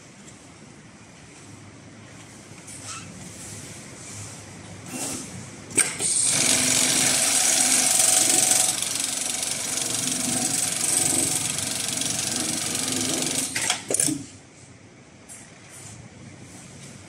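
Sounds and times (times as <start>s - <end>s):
sewing machine clacks: 5.8s - 14.2s
sewing machine running: 6.0s - 14.1s.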